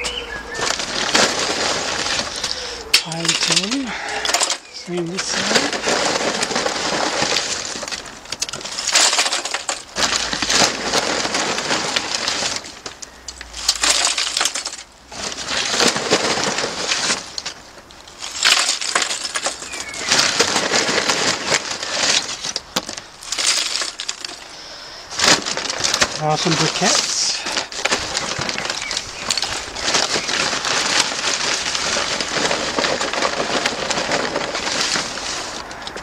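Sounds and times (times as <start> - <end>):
charcoal clattering into metal: 0.0 - 36.0.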